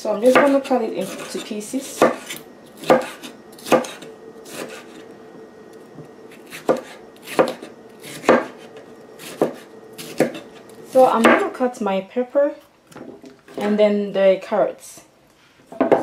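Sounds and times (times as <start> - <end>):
knife chopping on wooden board: 2.0 - 5.0, 6.4 - 8.6, 9.2 - 10.6.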